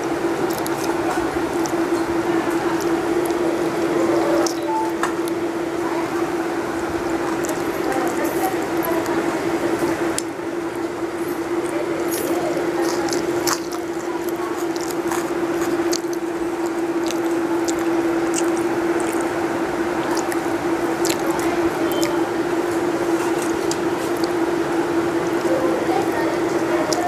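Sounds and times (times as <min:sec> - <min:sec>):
chewing and mouth smacks: 0:00.0 - 0:27.0
food squished between fingers: 0:00.0 - 0:27.0
steady low hum: 0:00.0 - 0:27.0.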